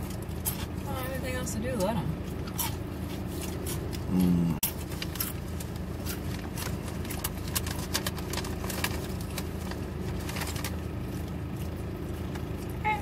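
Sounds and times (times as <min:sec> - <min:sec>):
crunching bites and chewing: 0:00.0 - 0:00.9, 0:02.2 - 0:12.8
low engine hum in a car: 0:00.0 - 0:13.0
person saying mm: 0:04.1 - 0:04.6.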